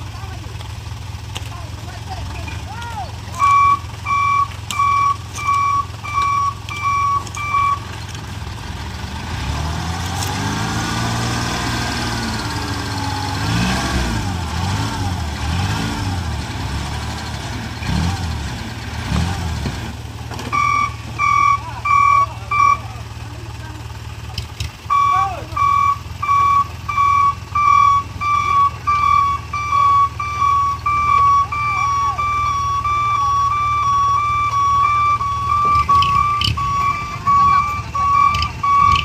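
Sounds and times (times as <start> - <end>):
truck engine idling and revving: 0.0 - 39.0
warning beeper beeps: 3.3 - 7.9, 20.5 - 23.2, 24.8 - 39.0.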